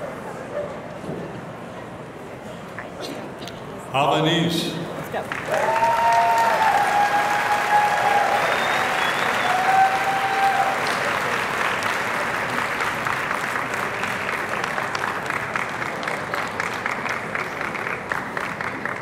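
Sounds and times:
audience applauding: 5.2s - 19.0s
crowd cheer: 5.4s - 15.0s.

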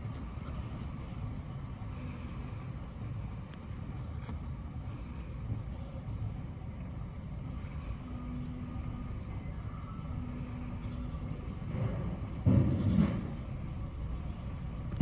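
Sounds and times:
faint low hum: 0.0s - 15.0s
steady low rumble: 0.0s - 15.0s.

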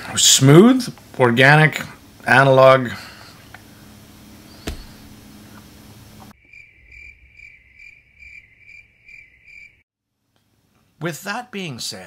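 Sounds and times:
cricket chirping: 6.4s - 9.8s.

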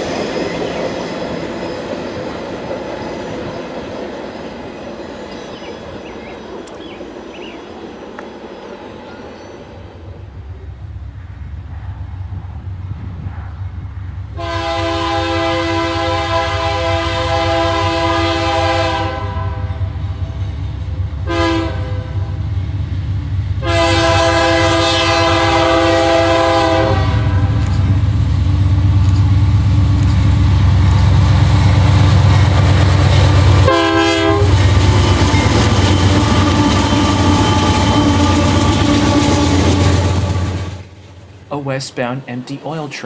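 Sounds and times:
rail noise: 0.0s - 43.0s
locomotive air horn: 14.4s - 19.8s, 21.2s - 22.3s, 23.6s - 27.8s, 33.6s - 34.6s, 36.4s - 40.3s.

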